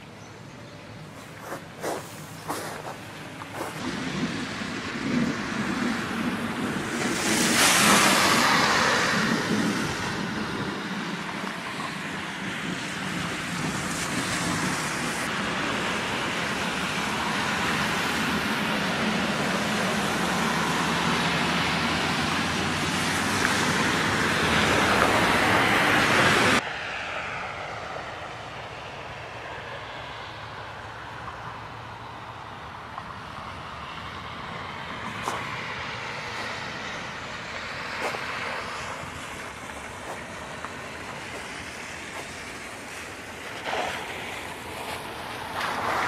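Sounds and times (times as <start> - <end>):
gusty wind buffeting microphone: 1.1 - 20.8.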